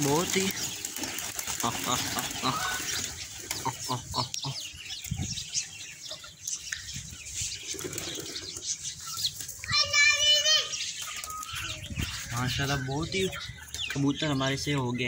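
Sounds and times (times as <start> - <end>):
wings flapping: 0.0 - 3.9
chicks clucking and peeping: 0.0 - 15.0.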